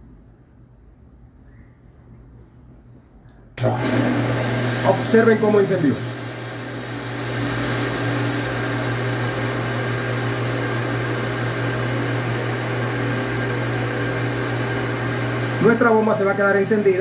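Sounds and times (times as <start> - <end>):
water pump humming: 3.6 - 17.0.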